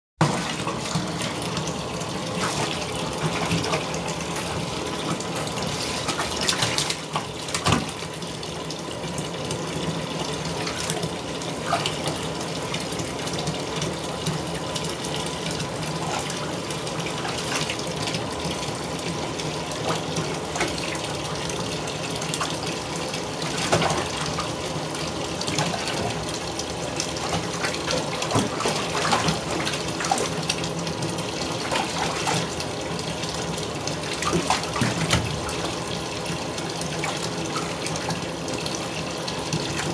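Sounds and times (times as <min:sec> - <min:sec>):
water splashes: 0:00.2 - 0:08.3, 0:10.4 - 0:39.9
faucet running into water: 0:00.2 - 0:39.9.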